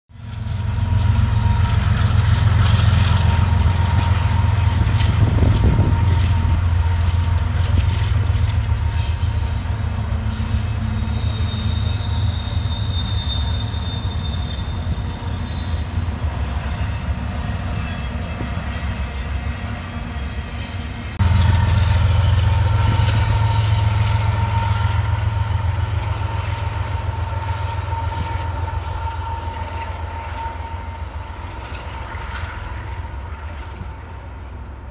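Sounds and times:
train wheels rumbling on rail: 0.1 - 34.9
locomotive diesel drone with whine: 21.2 - 31.3.

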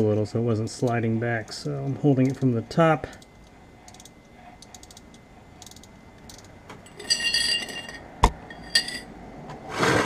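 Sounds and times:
metal hand tools clinking: 6.9 - 9.1.

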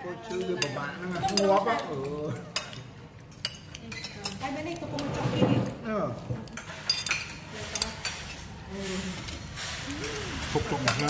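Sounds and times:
cutlery clinking on plates: 0.1 - 5.8, 6.4 - 11.0
hiss: 8.7 - 10.8.

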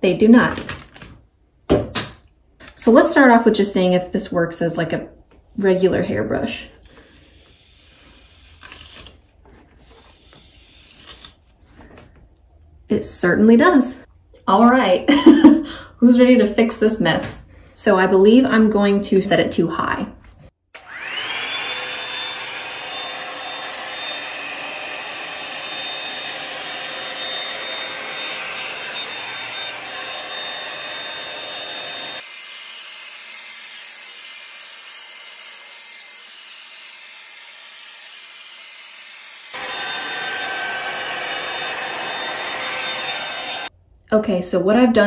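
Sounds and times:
hot-air brush dryer whine: 20.8 - 35.4, 36.2 - 43.7.

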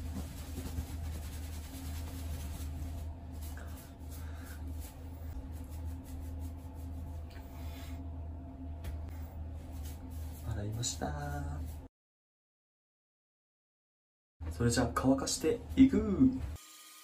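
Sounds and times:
towel rubbing wet hair: 0.0 - 8.0, 9.5 - 11.9
steady low hum: 0.0 - 11.9.

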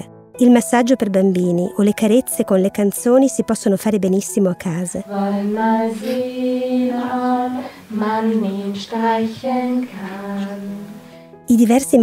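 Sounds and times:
woman singing slow song: 5.0 - 11.1.

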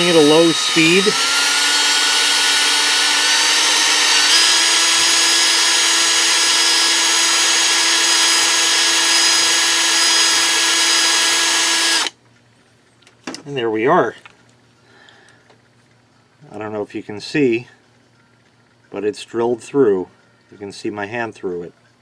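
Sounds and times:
cordless drill whining: 0.0 - 12.1.

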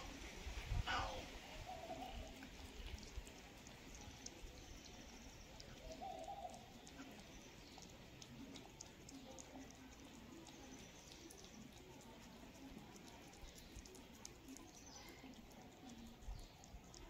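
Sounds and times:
cats chewing and licking food: 0.0 - 17.0
soft cat call: 0.8 - 1.9.

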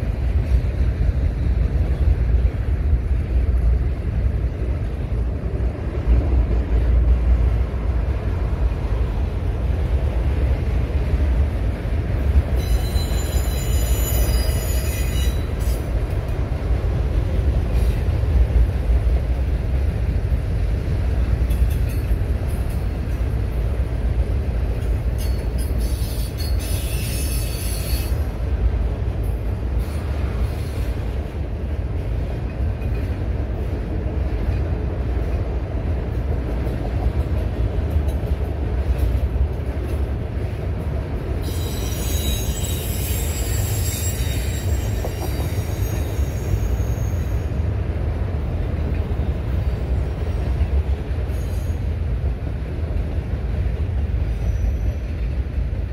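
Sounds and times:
train wheels rumbling on rail: 0.0 - 55.9
wheel squeal: 12.6 - 15.8, 25.2 - 28.2, 41.4 - 47.5, 54.4 - 55.1.

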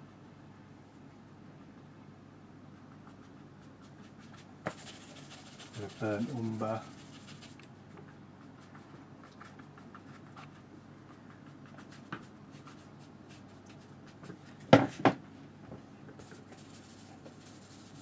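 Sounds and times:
paintbrush scratching on paper: 2.8 - 7.6, 8.4 - 14.2, 16.2 - 18.0.

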